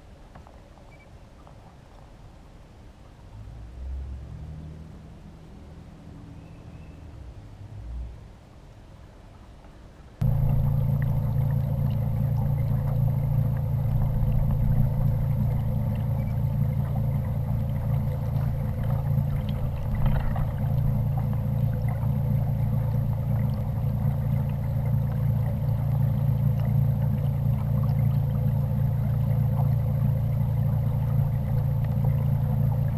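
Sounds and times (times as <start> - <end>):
small boat motor humming: 10.2 - 32.9.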